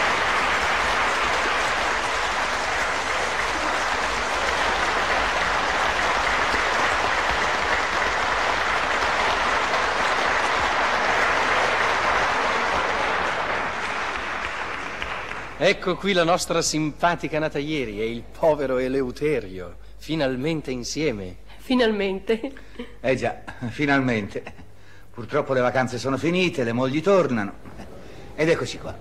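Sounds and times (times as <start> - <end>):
audience applauding: 0.0 - 16.1.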